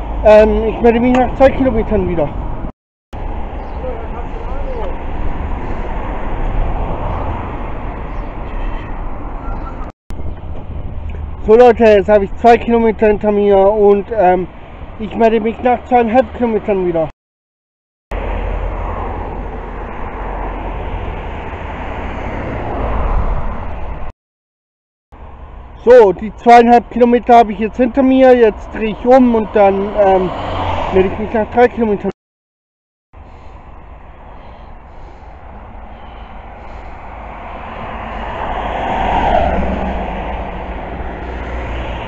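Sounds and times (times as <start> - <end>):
road vehicle passing close: 0.0 - 11.4, 18.2 - 24.1, 29.4 - 31.7, 33.2 - 42.0
wind buffeting microphone: 10.2 - 11.5.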